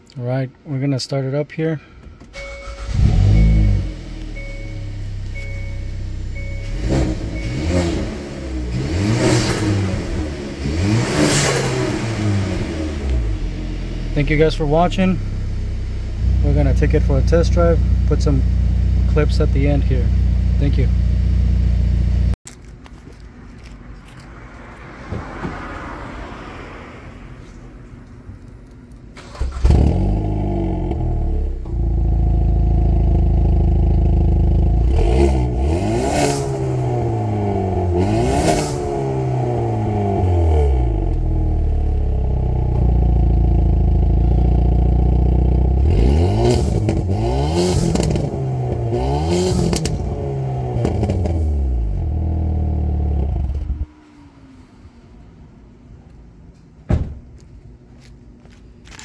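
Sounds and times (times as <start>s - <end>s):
car exhaust revving: 2.7s - 22.4s, 29.2s - 53.9s.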